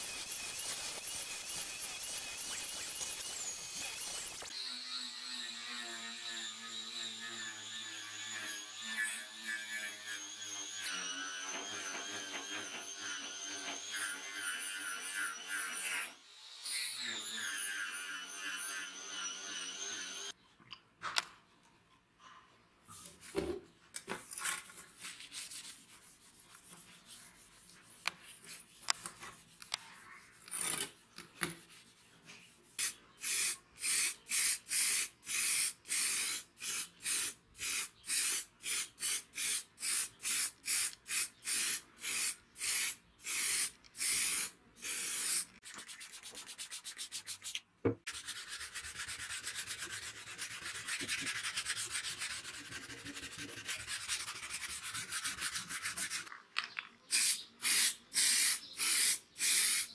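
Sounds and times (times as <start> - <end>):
angle grinder wire brush on metal: 0.0 - 4.6
aerosol spray can hissing: 32.8 - 45.5, 57.1 - 59.9.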